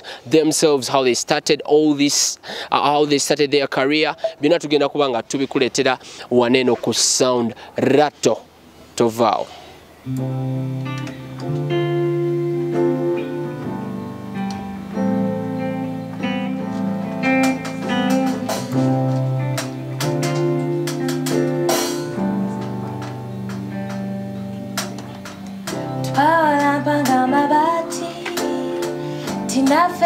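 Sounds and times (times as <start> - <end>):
keyboard chords: 10.0 - 30.0
drum and cymbal hits: 17.4 - 27.2.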